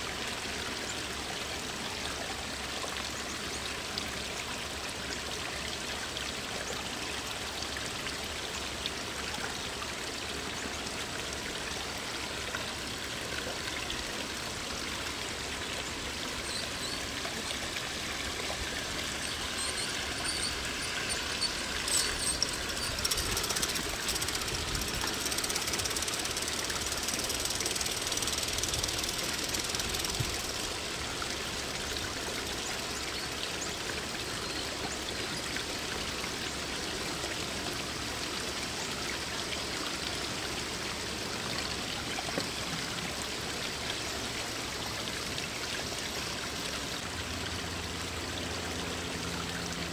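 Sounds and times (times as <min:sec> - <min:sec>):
small waterfall splashing: 0:00.0 - 0:49.9
wheels on track: 0:19.4 - 0:30.7
model steam locomotive chuffing: 0:21.5 - 0:30.6.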